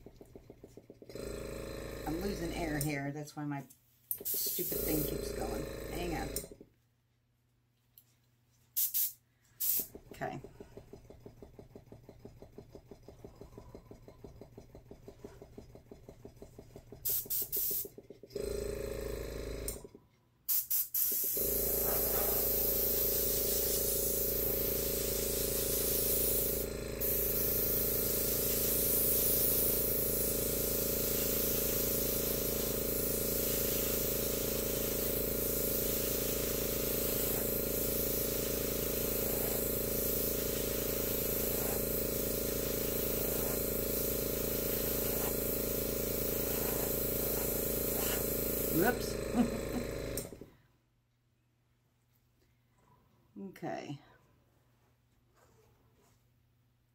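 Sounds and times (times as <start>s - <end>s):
air compressor humming: 0.0s - 3.0s, 4.1s - 6.7s, 8.8s - 50.6s
airbrush air hissing: 4.1s - 6.2s, 8.8s - 9.9s, 17.1s - 17.9s, 20.5s - 50.2s.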